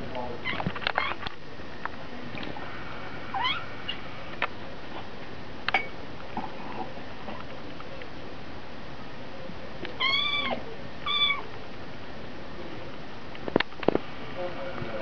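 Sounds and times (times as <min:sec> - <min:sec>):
steady hiss: 0:00.0 - 0:15.0
kitten squeak: 0:10.0 - 0:11.5.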